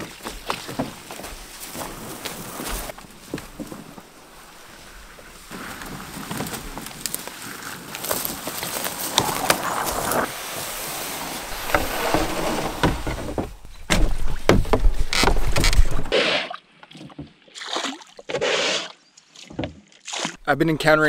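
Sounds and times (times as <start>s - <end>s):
rustling through grass: 0.0s - 16.1s
knocks against canoe hull: 11.5s - 16.1s.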